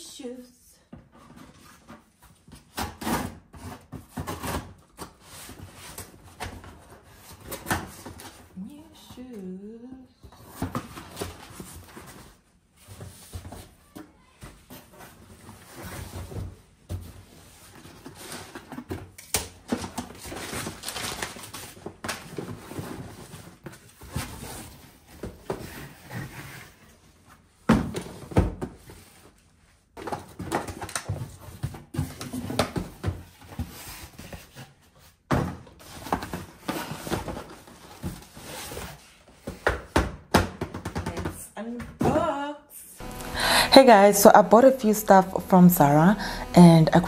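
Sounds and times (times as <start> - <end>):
packing paper rustling: 20.1 - 23.4
boxes knocking on countertop: 39.4 - 41.4.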